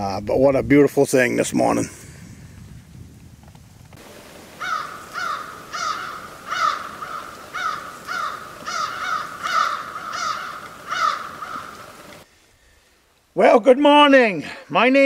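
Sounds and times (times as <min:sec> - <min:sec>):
crows cawing: 0:04.5 - 0:12.2.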